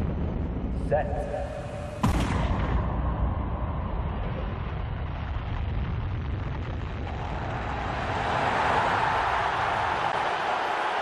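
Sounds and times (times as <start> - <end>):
deep rumbling boom: 0.0 - 9.9
rushing roar: 7.0 - 11.0.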